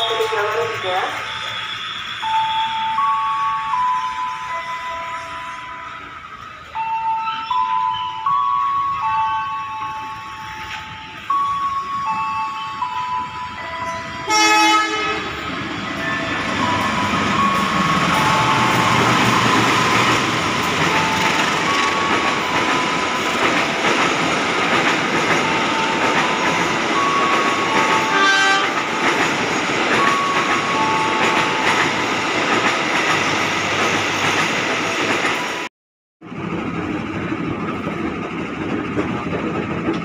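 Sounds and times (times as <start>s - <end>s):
train rumble and wheel clatter: 0.0s - 40.0s
locomotive horn: 14.2s - 15.5s, 28.0s - 29.0s.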